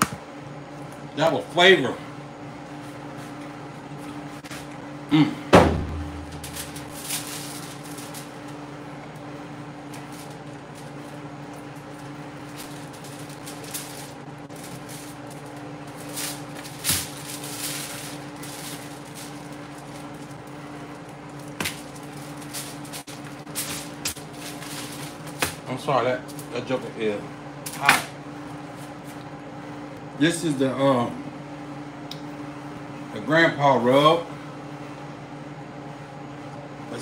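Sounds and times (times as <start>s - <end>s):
steady low hum: 0.0s - 37.0s
foil crinkling: 6.2s - 8.6s, 9.8s - 25.7s.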